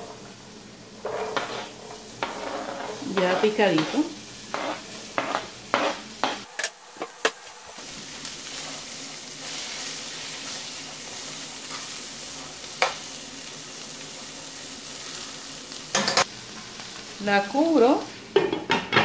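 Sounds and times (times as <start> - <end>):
onion sizzling in pan: 0.0 - 19.0
utensil scraping board and pan: 1.0 - 7.2.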